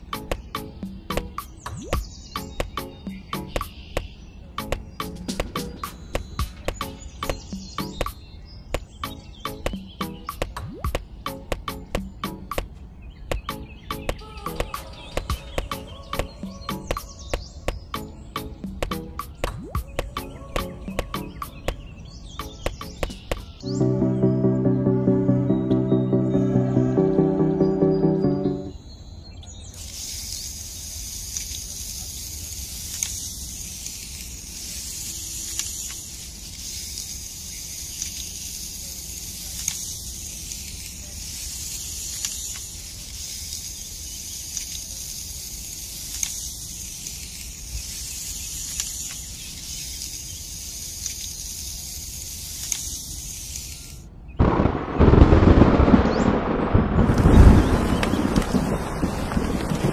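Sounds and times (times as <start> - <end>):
wind and rain rushing: 54.4 - 59.9.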